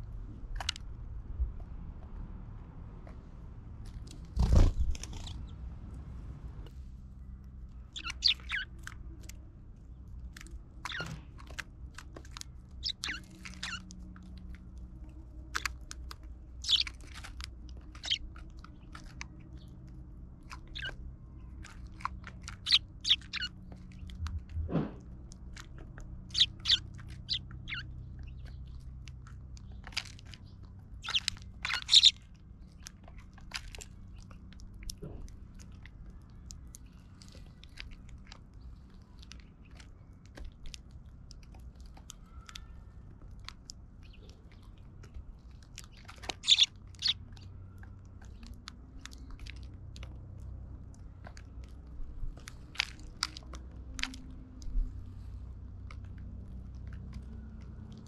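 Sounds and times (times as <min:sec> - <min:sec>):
birds pecking and cracking seeds: 0:00.0 - 0:06.0, 0:06.7 - 0:58.0.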